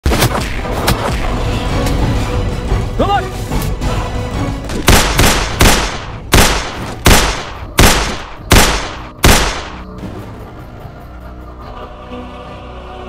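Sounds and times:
handgun shots: 0:04.8 - 0:09.8.

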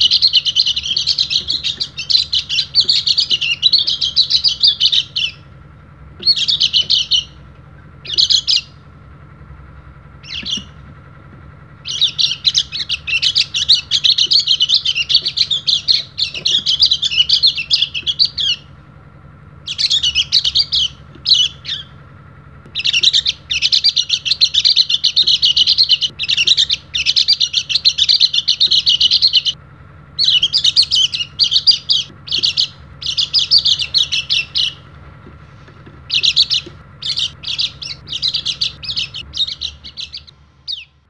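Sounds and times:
bird singing high chattering song: 0:00.0 - 0:09.0, 0:09.6 - 0:29.6, 0:30.2 - 0:41.0
faint steady hum: 0:00.0 - 0:41.0.

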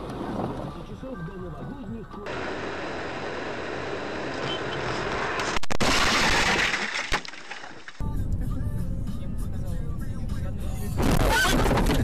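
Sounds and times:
road and vehicle noise: 0:00.0 - 0:05.8.

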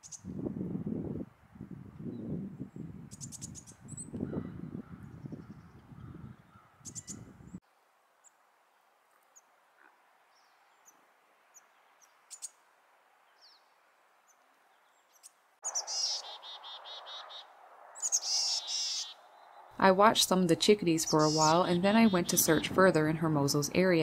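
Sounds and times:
chickadees calling: 0:05.3 - 0:07.3, 0:15.1 - 0:19.8, 0:20.7 - 0:24.0.

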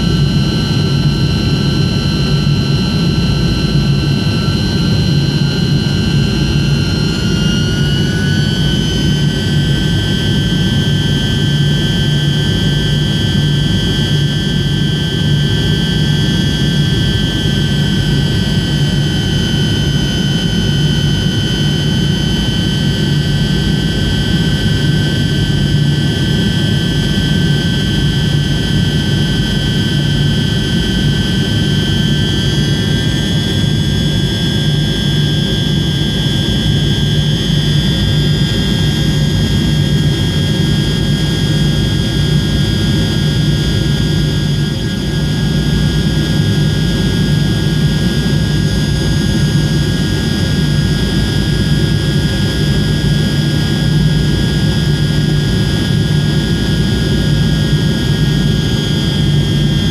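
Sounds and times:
engine whine: 0:00.0 - 0:59.9
jet engines roaring in cabin: 0:00.0 - 0:59.9.

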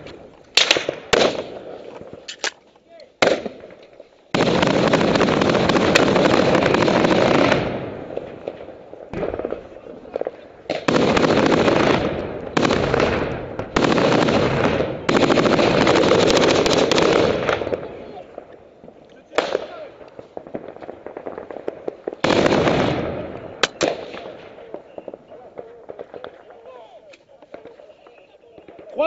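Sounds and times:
automatic gunfire bursts: 0:10.8 - 0:18.0.

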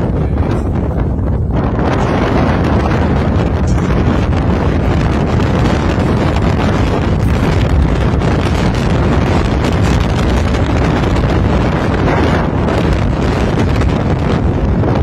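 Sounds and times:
strong wind buffeting microphone: 0:00.0 - 0:15.0.

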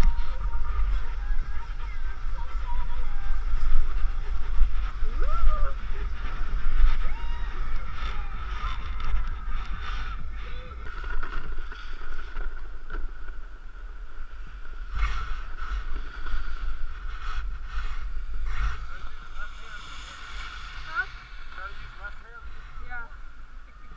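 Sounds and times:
wind buffeting microphone: 0:00.0 - 0:23.9
snowboard scraping snow: 0:14.0 - 0:23.1.

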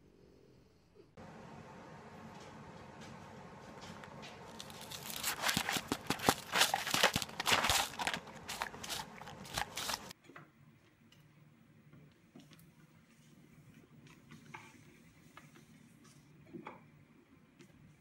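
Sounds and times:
dog crunching food on paper plate: 0:04.5 - 0:10.1.

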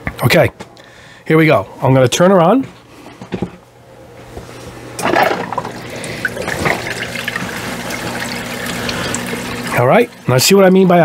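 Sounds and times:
pump humming: 0:05.0 - 0:11.0
water rushing and splashing: 0:05.4 - 0:10.3.

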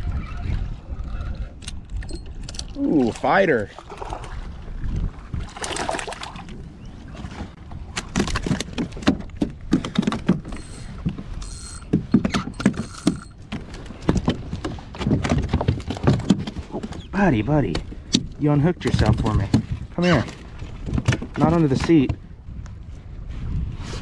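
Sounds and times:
fishing reel knocks and clicks: 0:10.4 - 0:13.4.

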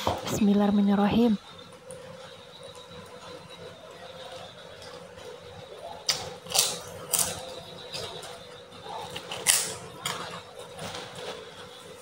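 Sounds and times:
crackers crunching while chewed: 0:05.8 - 0:11.9.

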